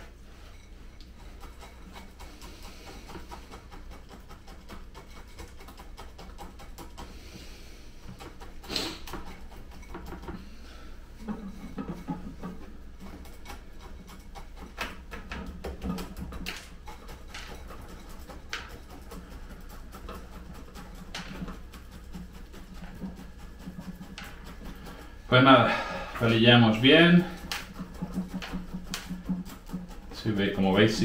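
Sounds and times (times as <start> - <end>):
gritty scratching in soil: 11.3 - 31.0.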